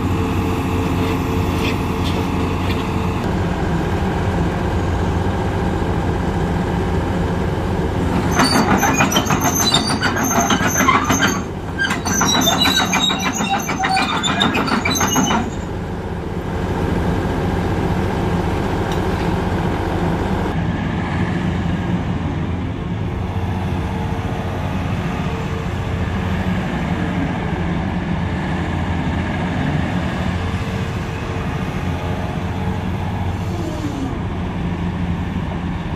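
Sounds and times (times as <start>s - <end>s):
diesel excavator engine running: 0.0s - 35.9s
steel tracks clanking and squealing: 8.0s - 15.9s.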